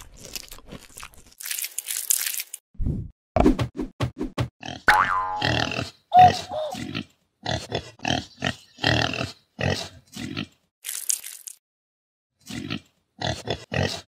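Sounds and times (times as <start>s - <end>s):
pig squealing: 5.4s - 10.4s
pig grunting: 5.4s - 10.6s, 12.4s - 14.0s.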